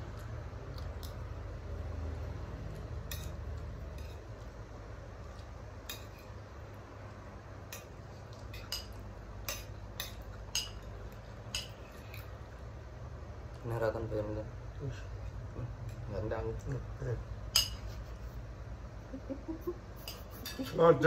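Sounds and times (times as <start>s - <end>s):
spoons clinking on plates: 3.0s - 4.3s, 5.8s - 6.4s, 7.7s - 12.3s, 17.5s - 18.1s, 20.0s - 20.8s.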